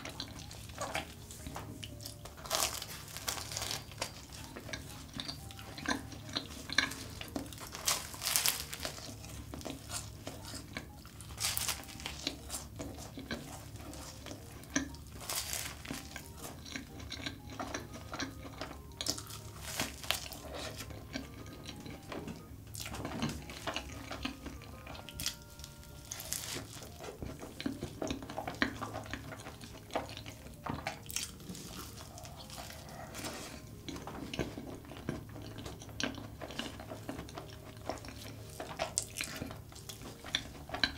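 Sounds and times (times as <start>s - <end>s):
chewing pastry: 0.0s - 40.9s
crunching bites: 1.9s - 4.5s, 5.2s - 22.0s.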